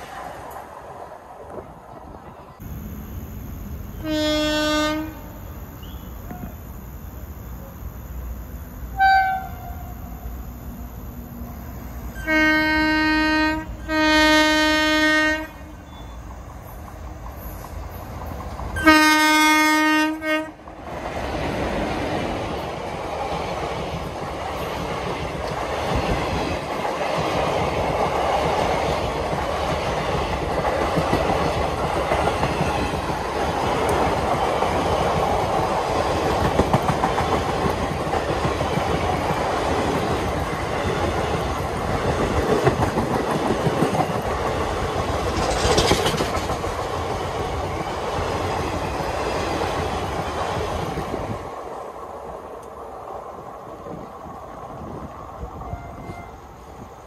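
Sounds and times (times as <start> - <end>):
train passing rush: 0.0 - 57.0
train horn blasts: 2.6 - 11.4, 12.1 - 16.2, 18.8 - 20.7, 55.6 - 56.6
wheels clattering on rail joints: 21.0 - 51.1.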